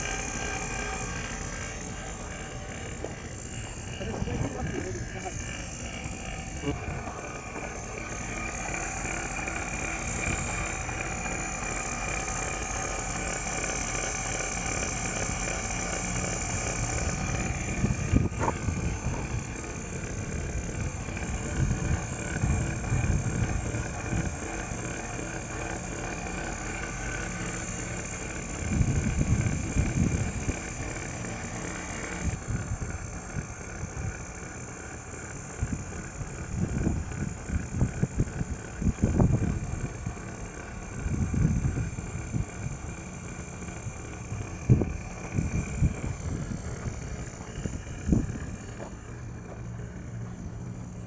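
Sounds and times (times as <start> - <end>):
vacuum pump running: 0.0 - 51.0
wind buffeting microphone: 16.5 - 24.5, 28.5 - 30.8, 35.6 - 40.2, 40.9 - 43.0, 44.4 - 48.6.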